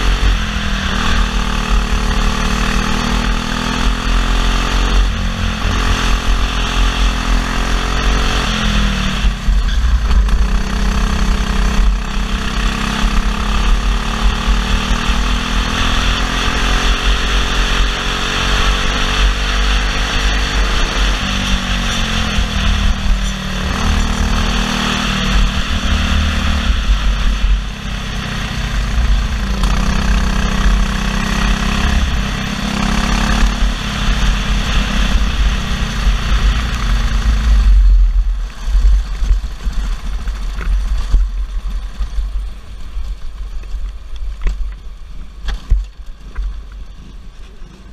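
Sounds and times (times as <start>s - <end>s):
kart engine revving: 0.0s - 38.0s.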